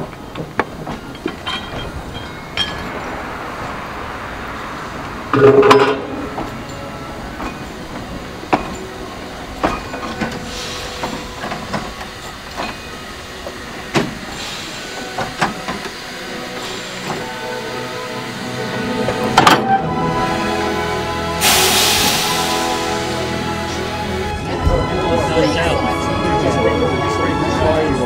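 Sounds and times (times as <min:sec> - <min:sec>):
wheels clanking and clicking: 0:00.0 - 0:03.9, 0:04.7 - 0:17.4
steam locomotive rolling past: 0:00.0 - 0:28.0
loud locomotive blast: 0:02.0 - 0:28.0
steam hissing: 0:06.2 - 0:19.4, 0:20.1 - 0:24.5.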